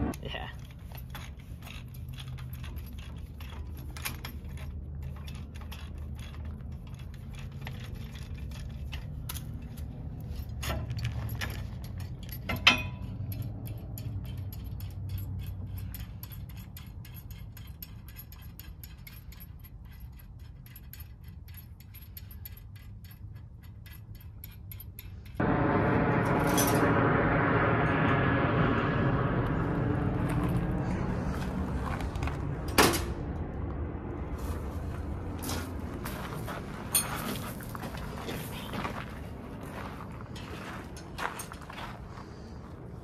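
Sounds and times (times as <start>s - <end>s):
ratchet wrench clicking: 11.4s - 25.4s
sharp metal clack: 12.1s - 28.1s.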